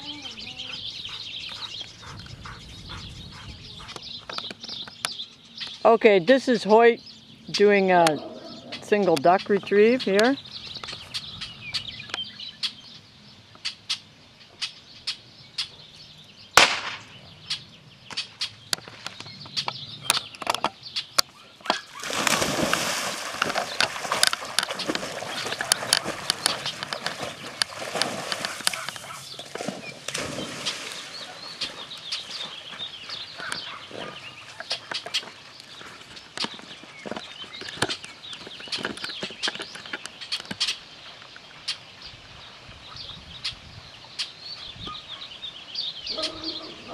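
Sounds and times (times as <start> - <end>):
loud crack: 16.6 - 17.1
dog splashing through water: 21.8 - 33.5.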